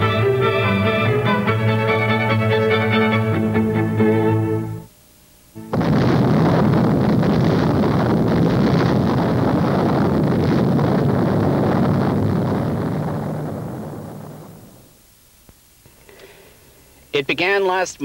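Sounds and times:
rumble of huge explosion: 5.7 - 14.9.

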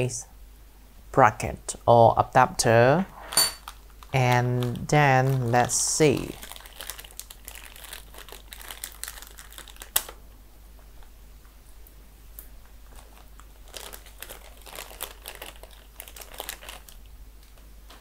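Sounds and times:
plastic bag crinkling: 3.3 - 10.2, 12.8 - 17.1.

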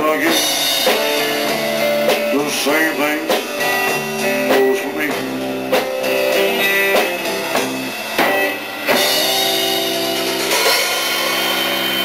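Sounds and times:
drum accents: 0.0 - 12.0
held guitar chord: 0.6 - 12.0
cymbals ringing: 5.3 - 12.0.

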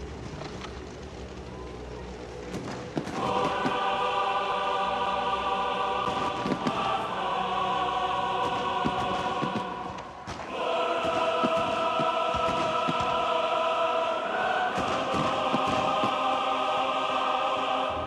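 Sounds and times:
low engine rumble: 0.0 - 18.0
sharp pops: 2.5 - 4.0, 6.0 - 7.1, 8.4 - 13.4, 14.7 - 16.4.

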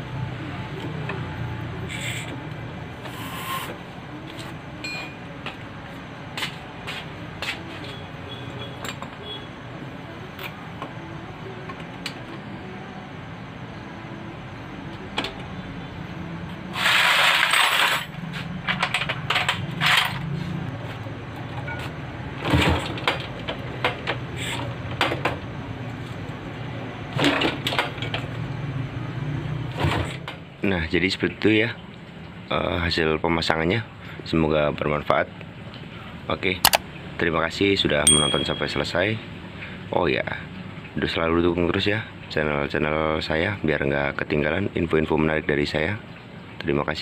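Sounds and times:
metal tools clinking and knocking: 38.1 - 38.9.

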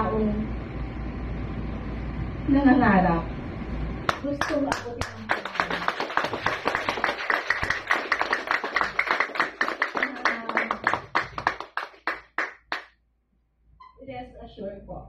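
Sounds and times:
audience applauding: 4.1 - 12.9.

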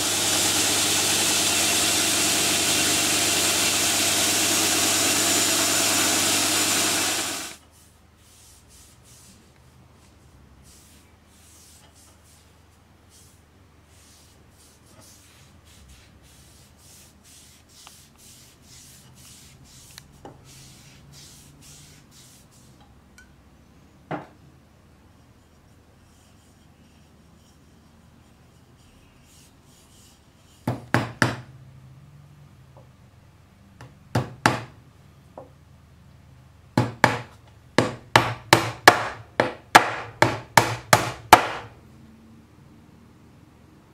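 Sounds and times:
rubbing on wooden handle: 13.1 - 22.8
hammer driving nails into wood: 36.8 - 41.7.

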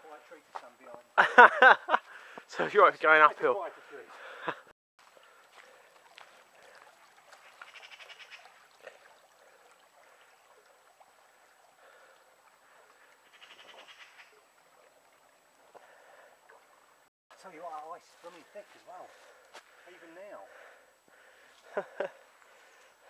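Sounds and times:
running on muddy trail: 0.4 - 2.6, 3.6 - 13.3, 17.6 - 23.0.

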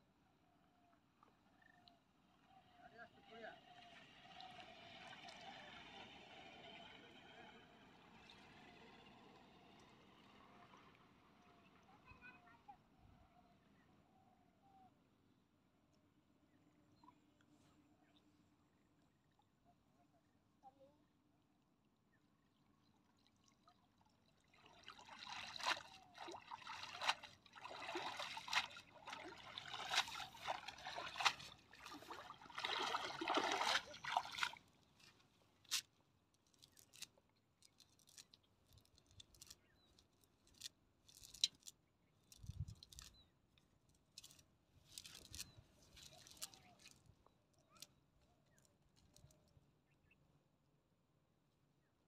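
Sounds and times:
water streaming from a net: 3.6 - 11.0, 23.1 - 34.8
wet net rustling on straw: 25.4 - 35.9, 36.6 - 37.1, 44.2 - 46.9.

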